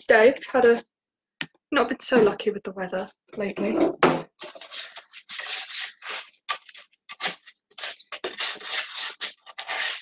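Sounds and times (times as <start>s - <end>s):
foil scraping metal baking tin: 4.4s - 10.0s.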